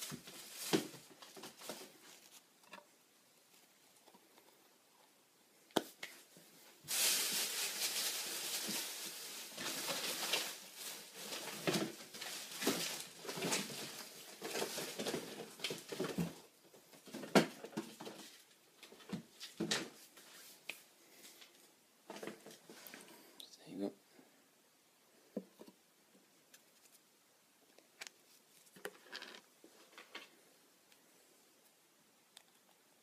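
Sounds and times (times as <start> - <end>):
packaging rustling and crinkling: 0.0 - 2.5, 6.8 - 20.6.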